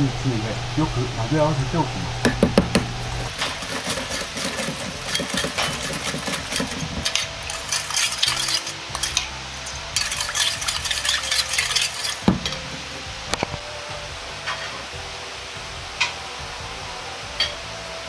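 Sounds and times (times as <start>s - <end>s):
metal spoon stirring in bowl: 3.3s - 13.0s.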